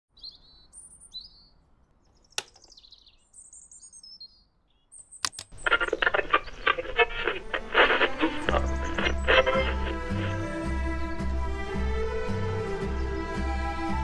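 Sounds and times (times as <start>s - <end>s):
small birds chirping: 0.1s - 11.3s
clock radio clicks: 5.2s - 10.4s
music from clock radio: 5.6s - 10.5s.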